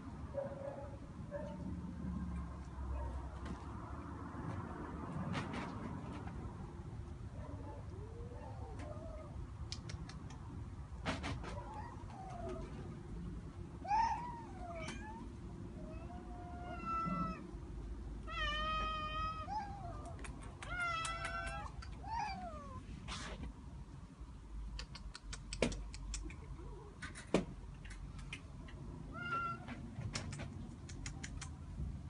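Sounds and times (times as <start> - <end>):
sharp clicks: 9.7 - 10.5, 20.0 - 22.0, 24.6 - 28.8, 30.0 - 31.6
cat meowing: 13.8 - 17.5, 18.2 - 22.8, 29.1 - 29.8.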